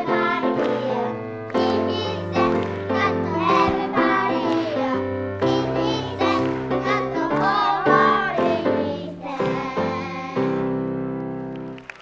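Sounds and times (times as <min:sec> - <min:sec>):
girls' choir singing: 0:00.0 - 0:11.1
instrumental accompaniment: 0:00.0 - 0:12.0.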